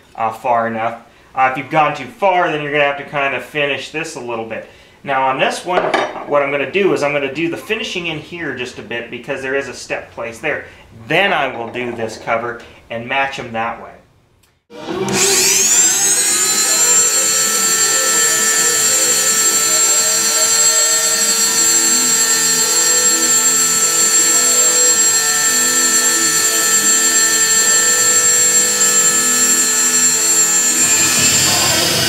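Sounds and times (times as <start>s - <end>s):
rotary tool high whine: 14.8s - 32.0s.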